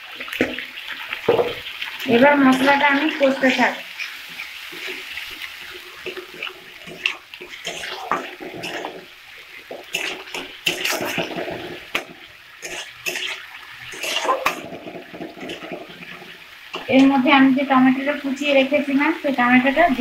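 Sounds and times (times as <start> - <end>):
paste sizzling in oil: 0.0 - 20.0
metal spatula scraping a wok: 2.4 - 16.9.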